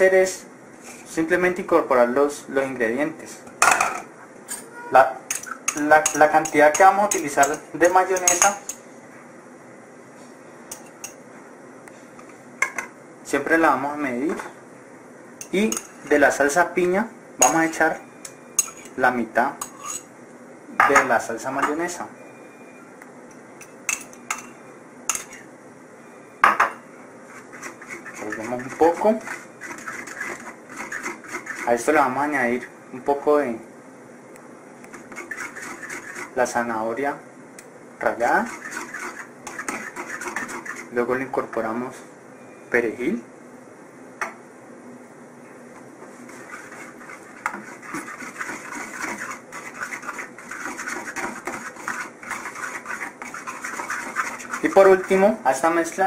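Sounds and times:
spoon scraping a wooden bowl: 18.2 - 19.0, 19.6 - 20.1, 27.3 - 31.9, 34.9 - 36.4, 38.3 - 41.0, 46.1 - 55.3.

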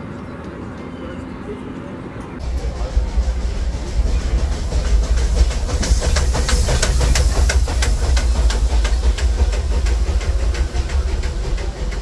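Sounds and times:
steam hiss: 2.4 - 12.0
steam locomotive chuffing: 2.4 - 12.0.

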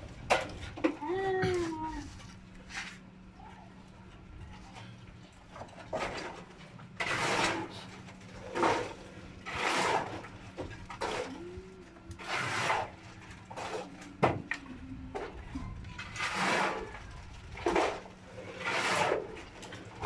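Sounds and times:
wood being rasped: 12.2 - 12.9.

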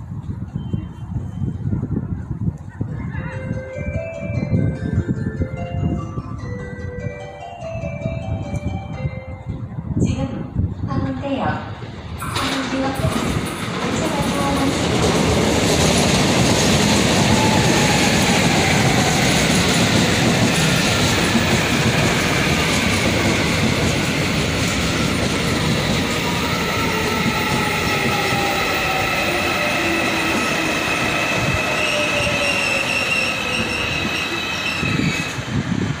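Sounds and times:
train wheels rumbling on rail: 0.0 - 36.0
rail-joint clatter: 12.2 - 17.1
high wheel squeal: 26.3 - 35.5.

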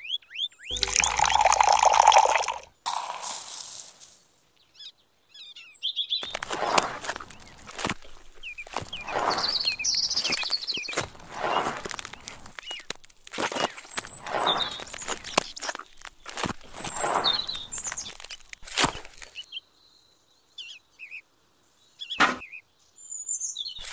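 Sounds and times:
birds chirping: 0.0 - 19.7
trowel scraping wet cement: 6.2 - 19.3.

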